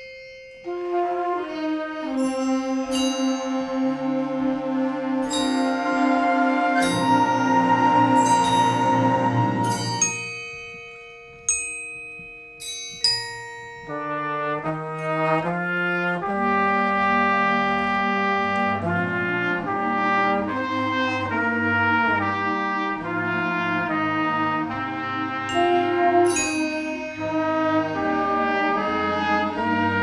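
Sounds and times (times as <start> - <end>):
bell-like mallet percussion notes: 0.0 - 15.5, 25.4 - 29.9
brass playing sustained chords: 0.7 - 10.1, 13.9 - 30.0.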